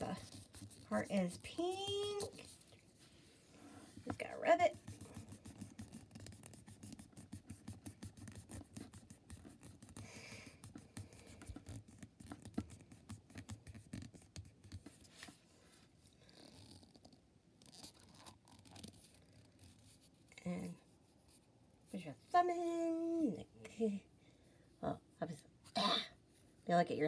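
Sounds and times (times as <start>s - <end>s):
thumb rubbing plastic egg: 0.0s - 2.7s, 4.0s - 14.9s.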